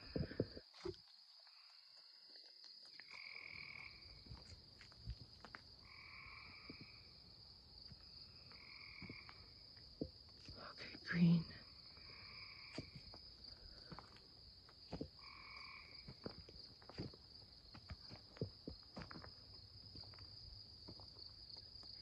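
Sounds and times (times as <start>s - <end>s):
frogs calling: 3.0s - 4.4s, 5.8s - 7.1s, 11.2s - 14.2s, 14.9s - 16.5s.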